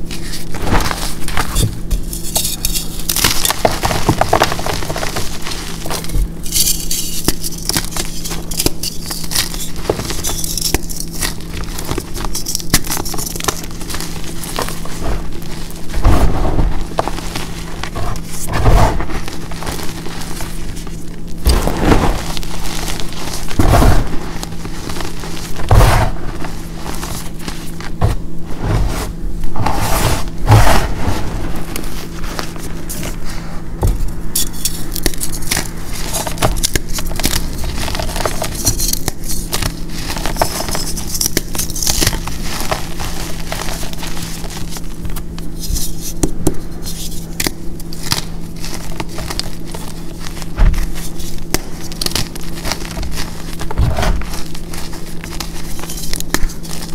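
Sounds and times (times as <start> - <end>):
chalk crunching in hands: 0.0 - 21.0, 34.3 - 56.9.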